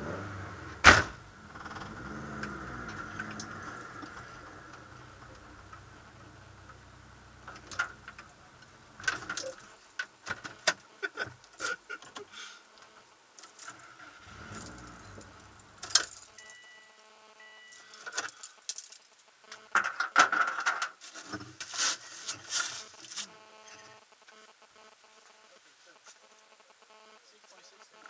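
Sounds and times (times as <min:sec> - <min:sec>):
low steady hum: 0:00.0 - 0:10.4, 0:13.8 - 0:17.8
short electronic beep: 0:16.4 - 0:18.0.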